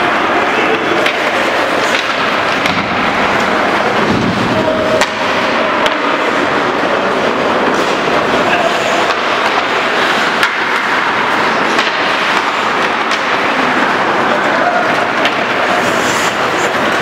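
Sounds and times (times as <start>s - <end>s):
hockey sticks clacking: 0.0s - 17.0s
skate blades scraping ice: 0.8s - 6.2s, 7.7s - 17.0s
sharp knocks of stick or puck: 1.0s - 3.2s, 4.9s - 6.2s, 9.0s - 9.8s, 10.4s - 13.5s.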